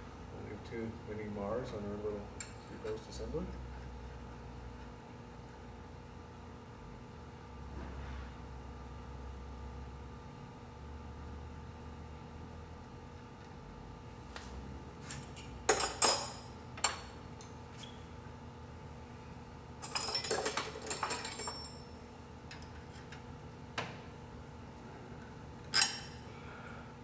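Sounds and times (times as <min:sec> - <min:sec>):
hand tool clinking on metal: 0:19.8 - 0:21.8, 0:25.7 - 0:26.2.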